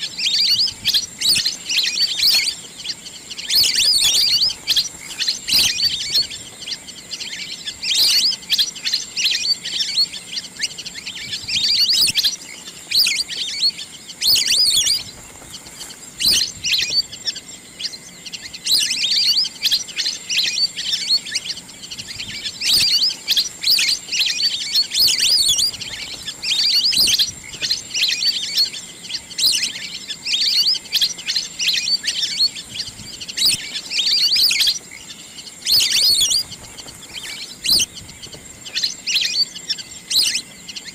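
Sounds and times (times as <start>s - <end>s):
wild duck chirping: 0.0s - 40.9s.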